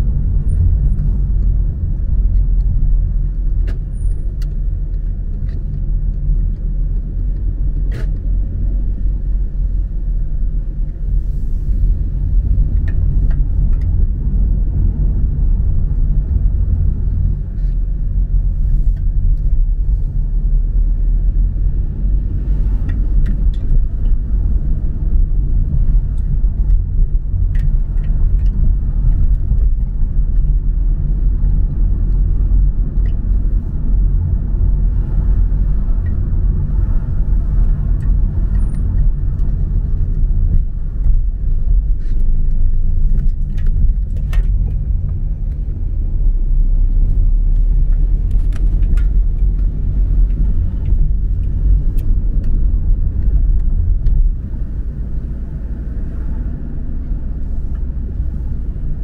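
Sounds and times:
car driving slowly: 0.0s - 59.0s.

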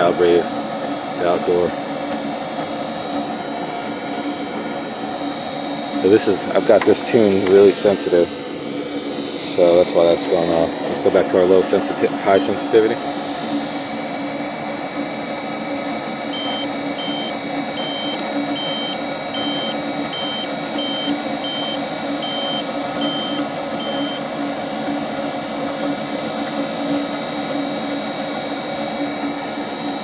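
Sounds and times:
furnace hum: 0.0s - 30.0s
gas detector beeping: 3.2s - 10.3s, 16.3s - 24.2s.

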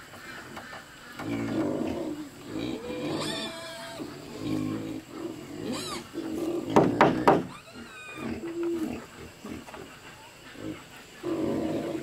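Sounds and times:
farm animal low calls: 0.1s - 12.0s
sharp knocks: 6.7s - 7.5s.

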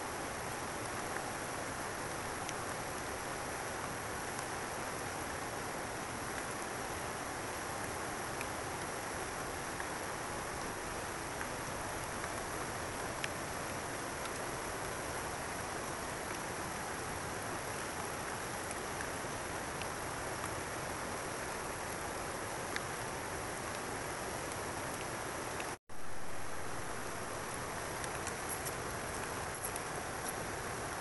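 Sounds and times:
flowing water rushing: 0.0s - 31.0s
faint ticks: 22.7s - 23.0s, 23.6s - 25.8s, 27.4s - 31.0s.

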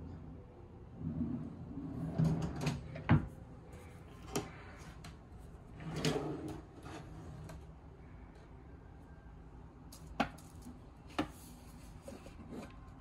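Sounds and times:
wooden drawer sliding: 5.8s - 7.6s.

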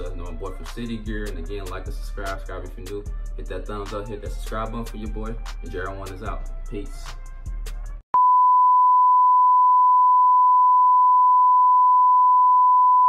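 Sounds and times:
background music: 0.0s - 8.0s.

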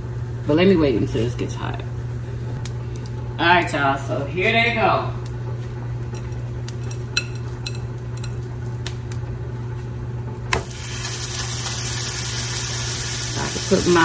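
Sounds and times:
steady low hum: 0.0s - 14.0s
meat sizzling in oil: 10.5s - 14.0s.

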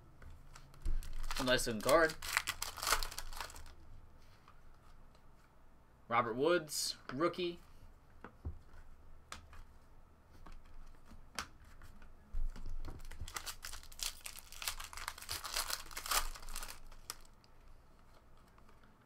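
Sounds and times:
foil wrapper crinkling: 0.6s - 3.8s, 13.0s - 17.4s.

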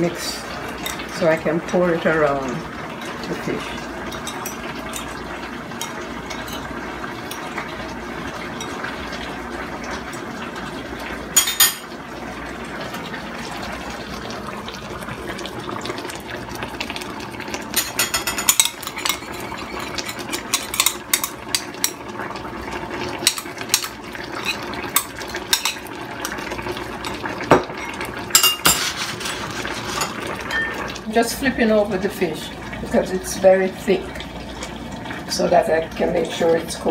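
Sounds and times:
stew simmering: 0.0s - 36.9s
spoon clinking against glass bowl: 17.8s - 22.0s.

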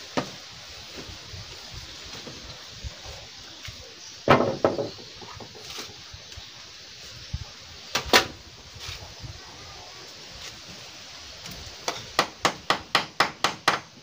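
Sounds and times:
hollow knocks on bamboo poles: 0.1s - 0.4s, 4.2s - 5.6s, 11.5s - 13.9s.

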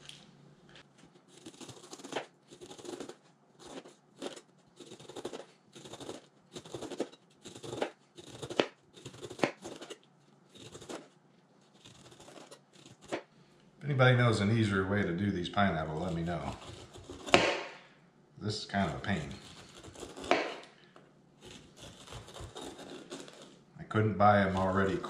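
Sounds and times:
knife cutting pineapple rind: 1.2s - 13.3s, 15.6s - 17.7s, 18.8s - 20.8s, 21.4s - 23.6s, 24.4s - 25.0s.

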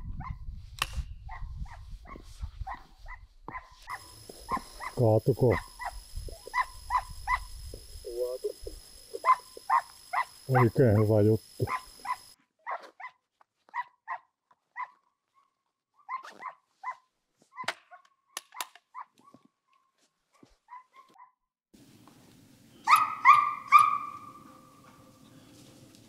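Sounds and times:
hound barking and baying: 1.3s - 7.6s, 9.1s - 15.0s, 22.8s - 25.2s.

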